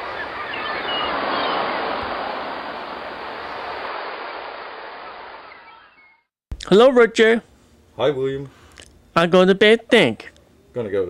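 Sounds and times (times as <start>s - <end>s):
ocean waves washing: 0.0s - 5.9s.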